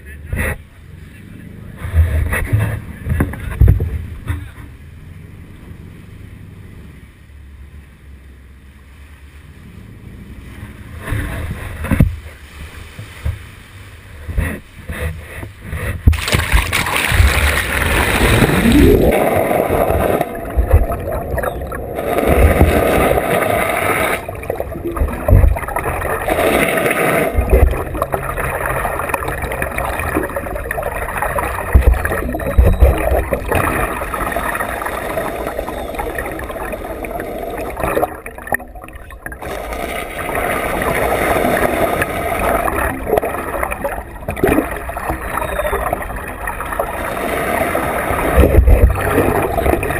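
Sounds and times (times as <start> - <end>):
boat engine: 0.0 - 49.9
underwater rushing gurgling water: 14.1 - 49.9
low thumps: 15.5 - 23.3, 24.2 - 26.1.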